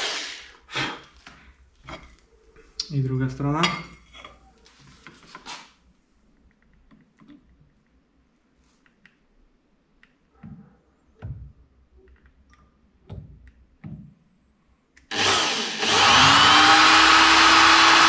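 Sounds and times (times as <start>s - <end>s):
electric drill boring into metal: 15.1s - 18.0s.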